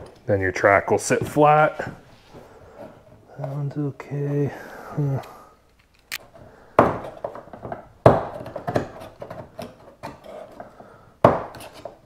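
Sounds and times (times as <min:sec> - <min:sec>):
knife scraping plastic: 0:08.4 - 0:10.9, 0:11.5 - 0:12.0.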